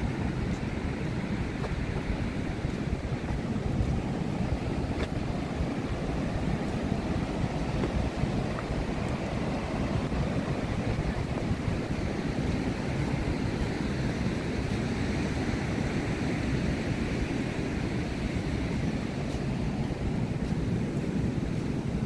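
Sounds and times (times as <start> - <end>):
ocean surf breaking on beach: 0.0 - 22.0
wind rumbling on microphone: 0.0 - 22.0.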